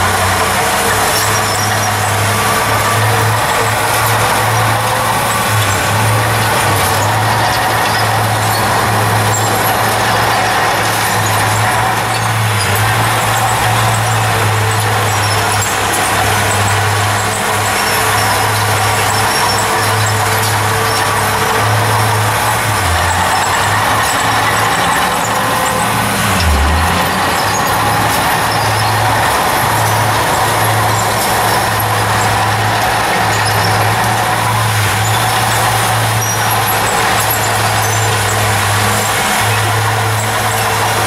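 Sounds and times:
bulldozer diesel engine running: 0:00.0 - 0:41.0.

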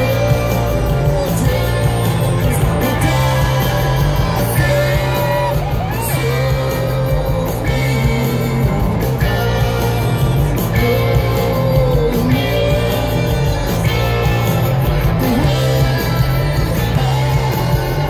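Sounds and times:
bass guitar: 0:00.0 - 0:18.0
drums: 0:00.0 - 0:18.0
electric guitar: 0:00.0 - 0:18.0.

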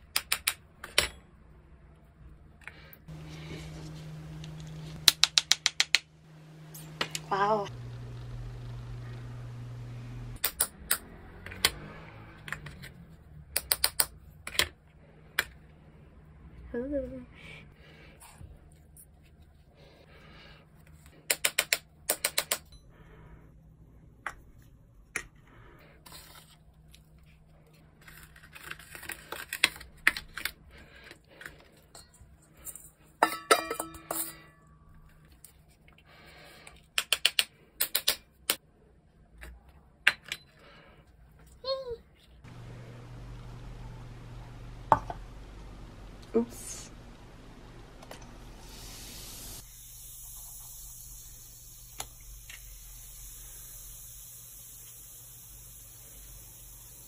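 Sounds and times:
steady low hum: 0:02.3 - 0:10.4, 0:42.4 - 0:56.8.

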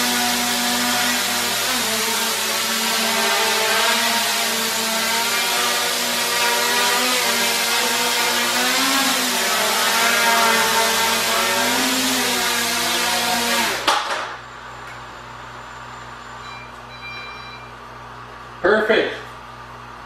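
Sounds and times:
quadcopter propellers whirring: 0:00.0 - 0:13.9.

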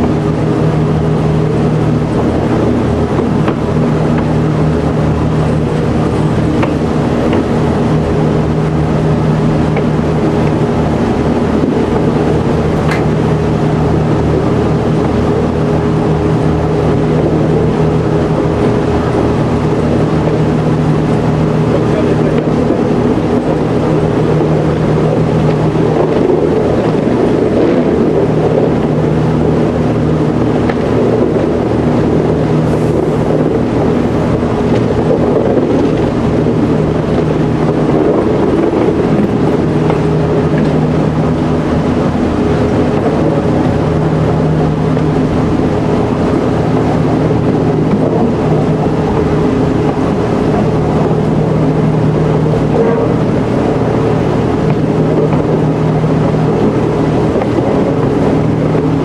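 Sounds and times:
railcar engine running: 0:00.0 - 0:59.0
wheels rumbling on track: 0:00.0 - 0:59.0.

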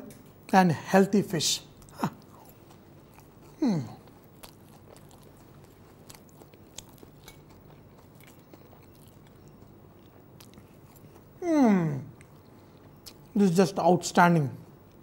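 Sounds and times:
man chewing crunchy food: 0:01.7 - 0:13.4
man humming mmm: 0:03.5 - 0:04.1, 0:11.4 - 0:12.2.

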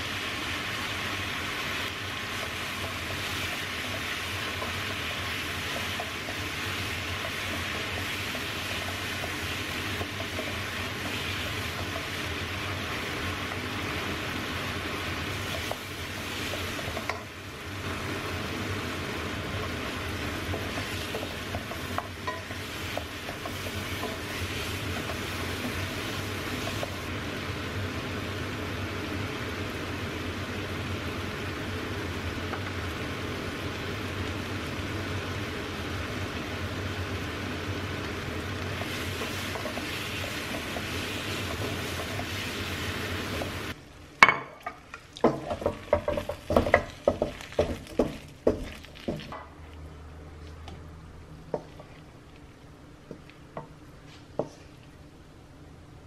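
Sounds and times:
noodles sizzling in a wok: 0:00.0 - 0:49.4
wooden spatula scraping a pan: 0:38.8 - 0:43.7.

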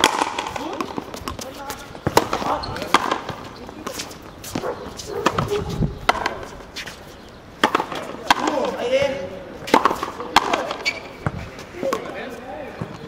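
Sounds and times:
rubber ball struck by racquets: 0:00.0 - 0:01.5, 0:05.2 - 0:06.4, 0:07.6 - 0:08.7, 0:09.7 - 0:12.0.

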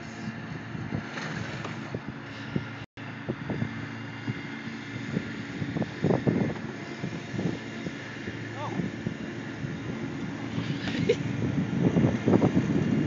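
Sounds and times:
low engine-like hum: 0:00.0 - 0:13.0
wind noise on microphone: 0:00.0 - 0:13.0.

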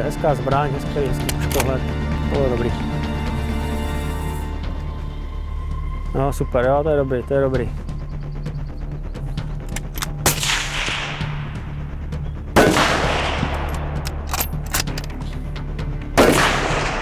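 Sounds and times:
rifle shots echoing: 0:10.0 - 0:11.7, 0:12.6 - 0:15.0, 0:16.2 - 0:17.0.

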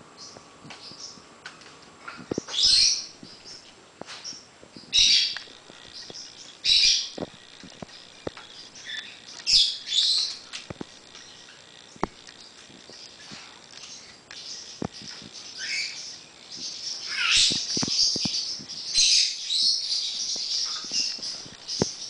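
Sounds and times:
parrot raspy calls: 0:17.0 - 0:17.7.

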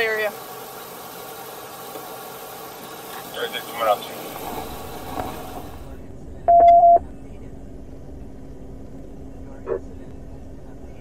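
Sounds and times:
faint low hum: 0:03.8 - 0:11.0
electronic beep: 0:06.5 - 0:07.0.

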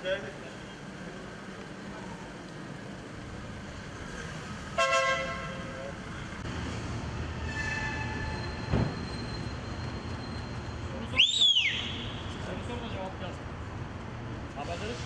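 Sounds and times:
street traffic: 0:00.0 - 0:15.0
car horn toot: 0:04.8 - 0:05.6
low thump: 0:08.7 - 0:09.0.

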